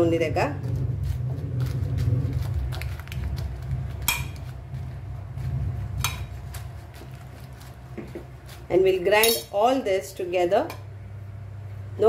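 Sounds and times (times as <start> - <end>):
metal spoon clinking in bowl: 9.2 - 9.6.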